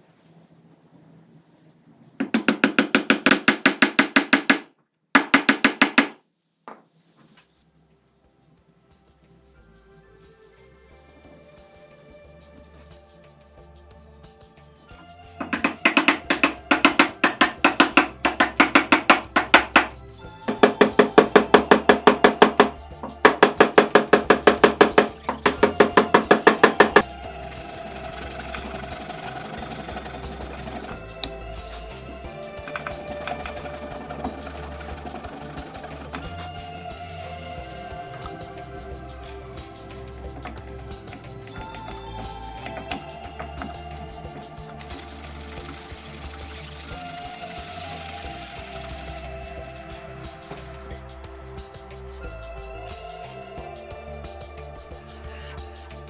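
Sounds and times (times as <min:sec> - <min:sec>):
wooden mallet tapping dowel: 0:02.2 - 0:06.8, 0:15.4 - 0:27.1.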